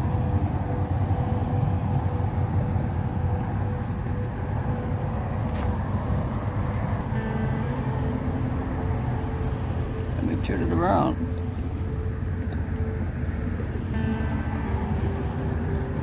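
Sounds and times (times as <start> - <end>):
outboard motor running: 0.0 - 16.0.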